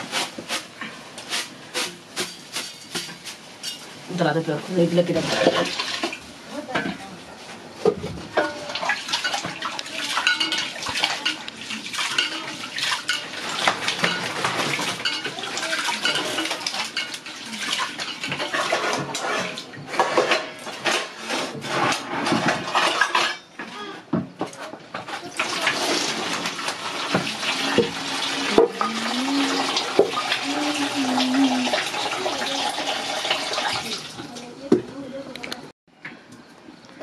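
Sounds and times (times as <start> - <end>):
clinks and scrapes on metal pot: 8.4 - 23.7.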